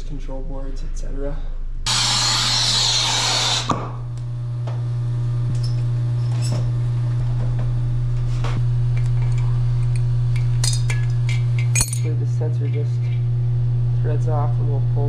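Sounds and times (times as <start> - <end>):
low machine hum: 0.0 - 15.0
gas hissing: 1.9 - 4.7
metallic tool clicks: 9.3 - 12.1.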